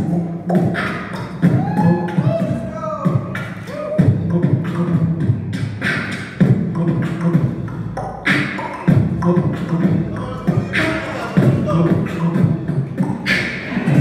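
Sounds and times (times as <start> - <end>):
beatboxing deep booms: 0.0 - 14.0
beatboxing quick ticks: 0.5 - 1.5, 3.3 - 10.0, 10.8 - 14.0
beatboxing hissing hits: 3.1 - 14.0.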